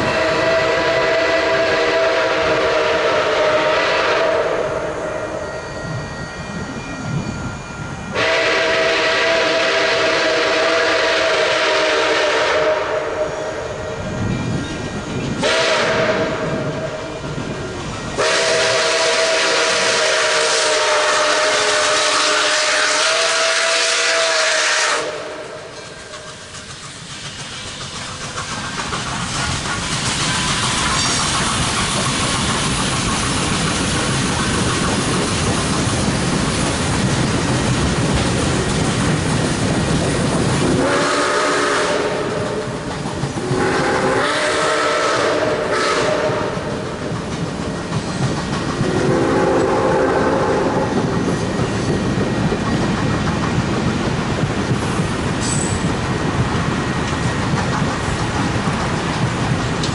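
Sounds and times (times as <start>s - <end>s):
steam whistle blasts: 0.0s - 5.4s, 8.1s - 13.9s, 15.4s - 17.1s, 18.2s - 26.1s, 40.6s - 42.8s, 43.4s - 47.0s, 48.8s - 50.9s
train rumbling past: 0.0s - 59.9s.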